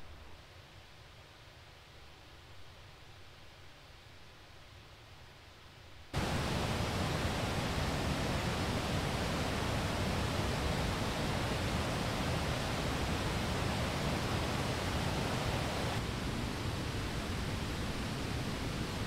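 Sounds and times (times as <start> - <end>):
stream water rushing: 6.2 - 19.0.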